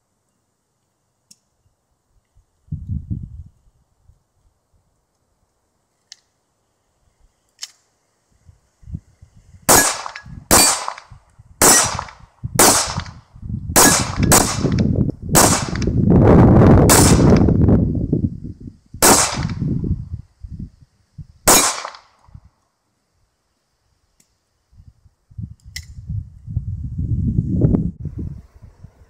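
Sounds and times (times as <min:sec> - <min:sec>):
pistol shots: 0:09.7 - 0:13.2, 0:13.8 - 0:15.9, 0:16.9 - 0:17.5, 0:19.0 - 0:19.6, 0:21.5 - 0:22.2.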